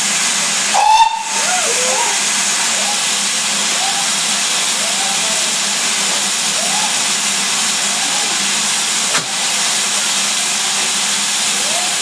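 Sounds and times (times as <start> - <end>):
steam hissing from locomotive: 0.0 - 12.0.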